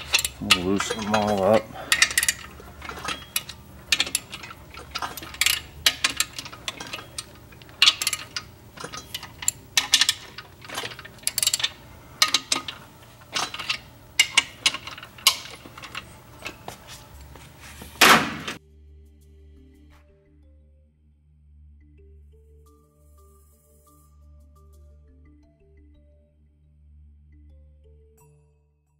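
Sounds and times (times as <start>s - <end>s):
ratchet wrench clicking on bolts: 0.0s - 17.5s
metal clank: 0.0s - 18.6s.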